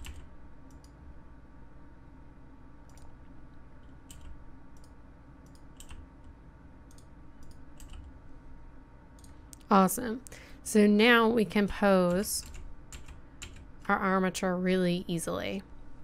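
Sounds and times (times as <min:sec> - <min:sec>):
keyboard and mouse clicks: 0:02.9 - 0:03.2, 0:03.8 - 0:08.1.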